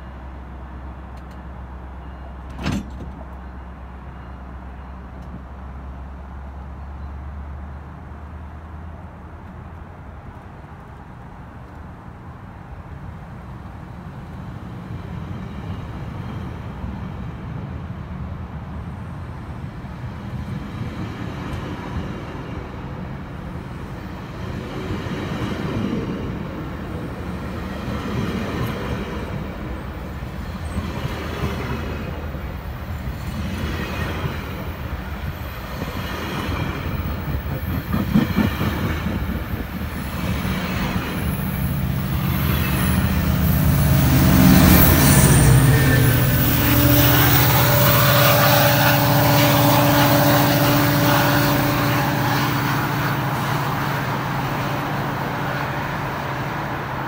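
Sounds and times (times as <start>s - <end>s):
diesel locomotive engine drone: 0.0s - 57.0s
sharp clunk: 2.5s - 3.2s
train wheels rolling over rails: 20.3s - 47.7s.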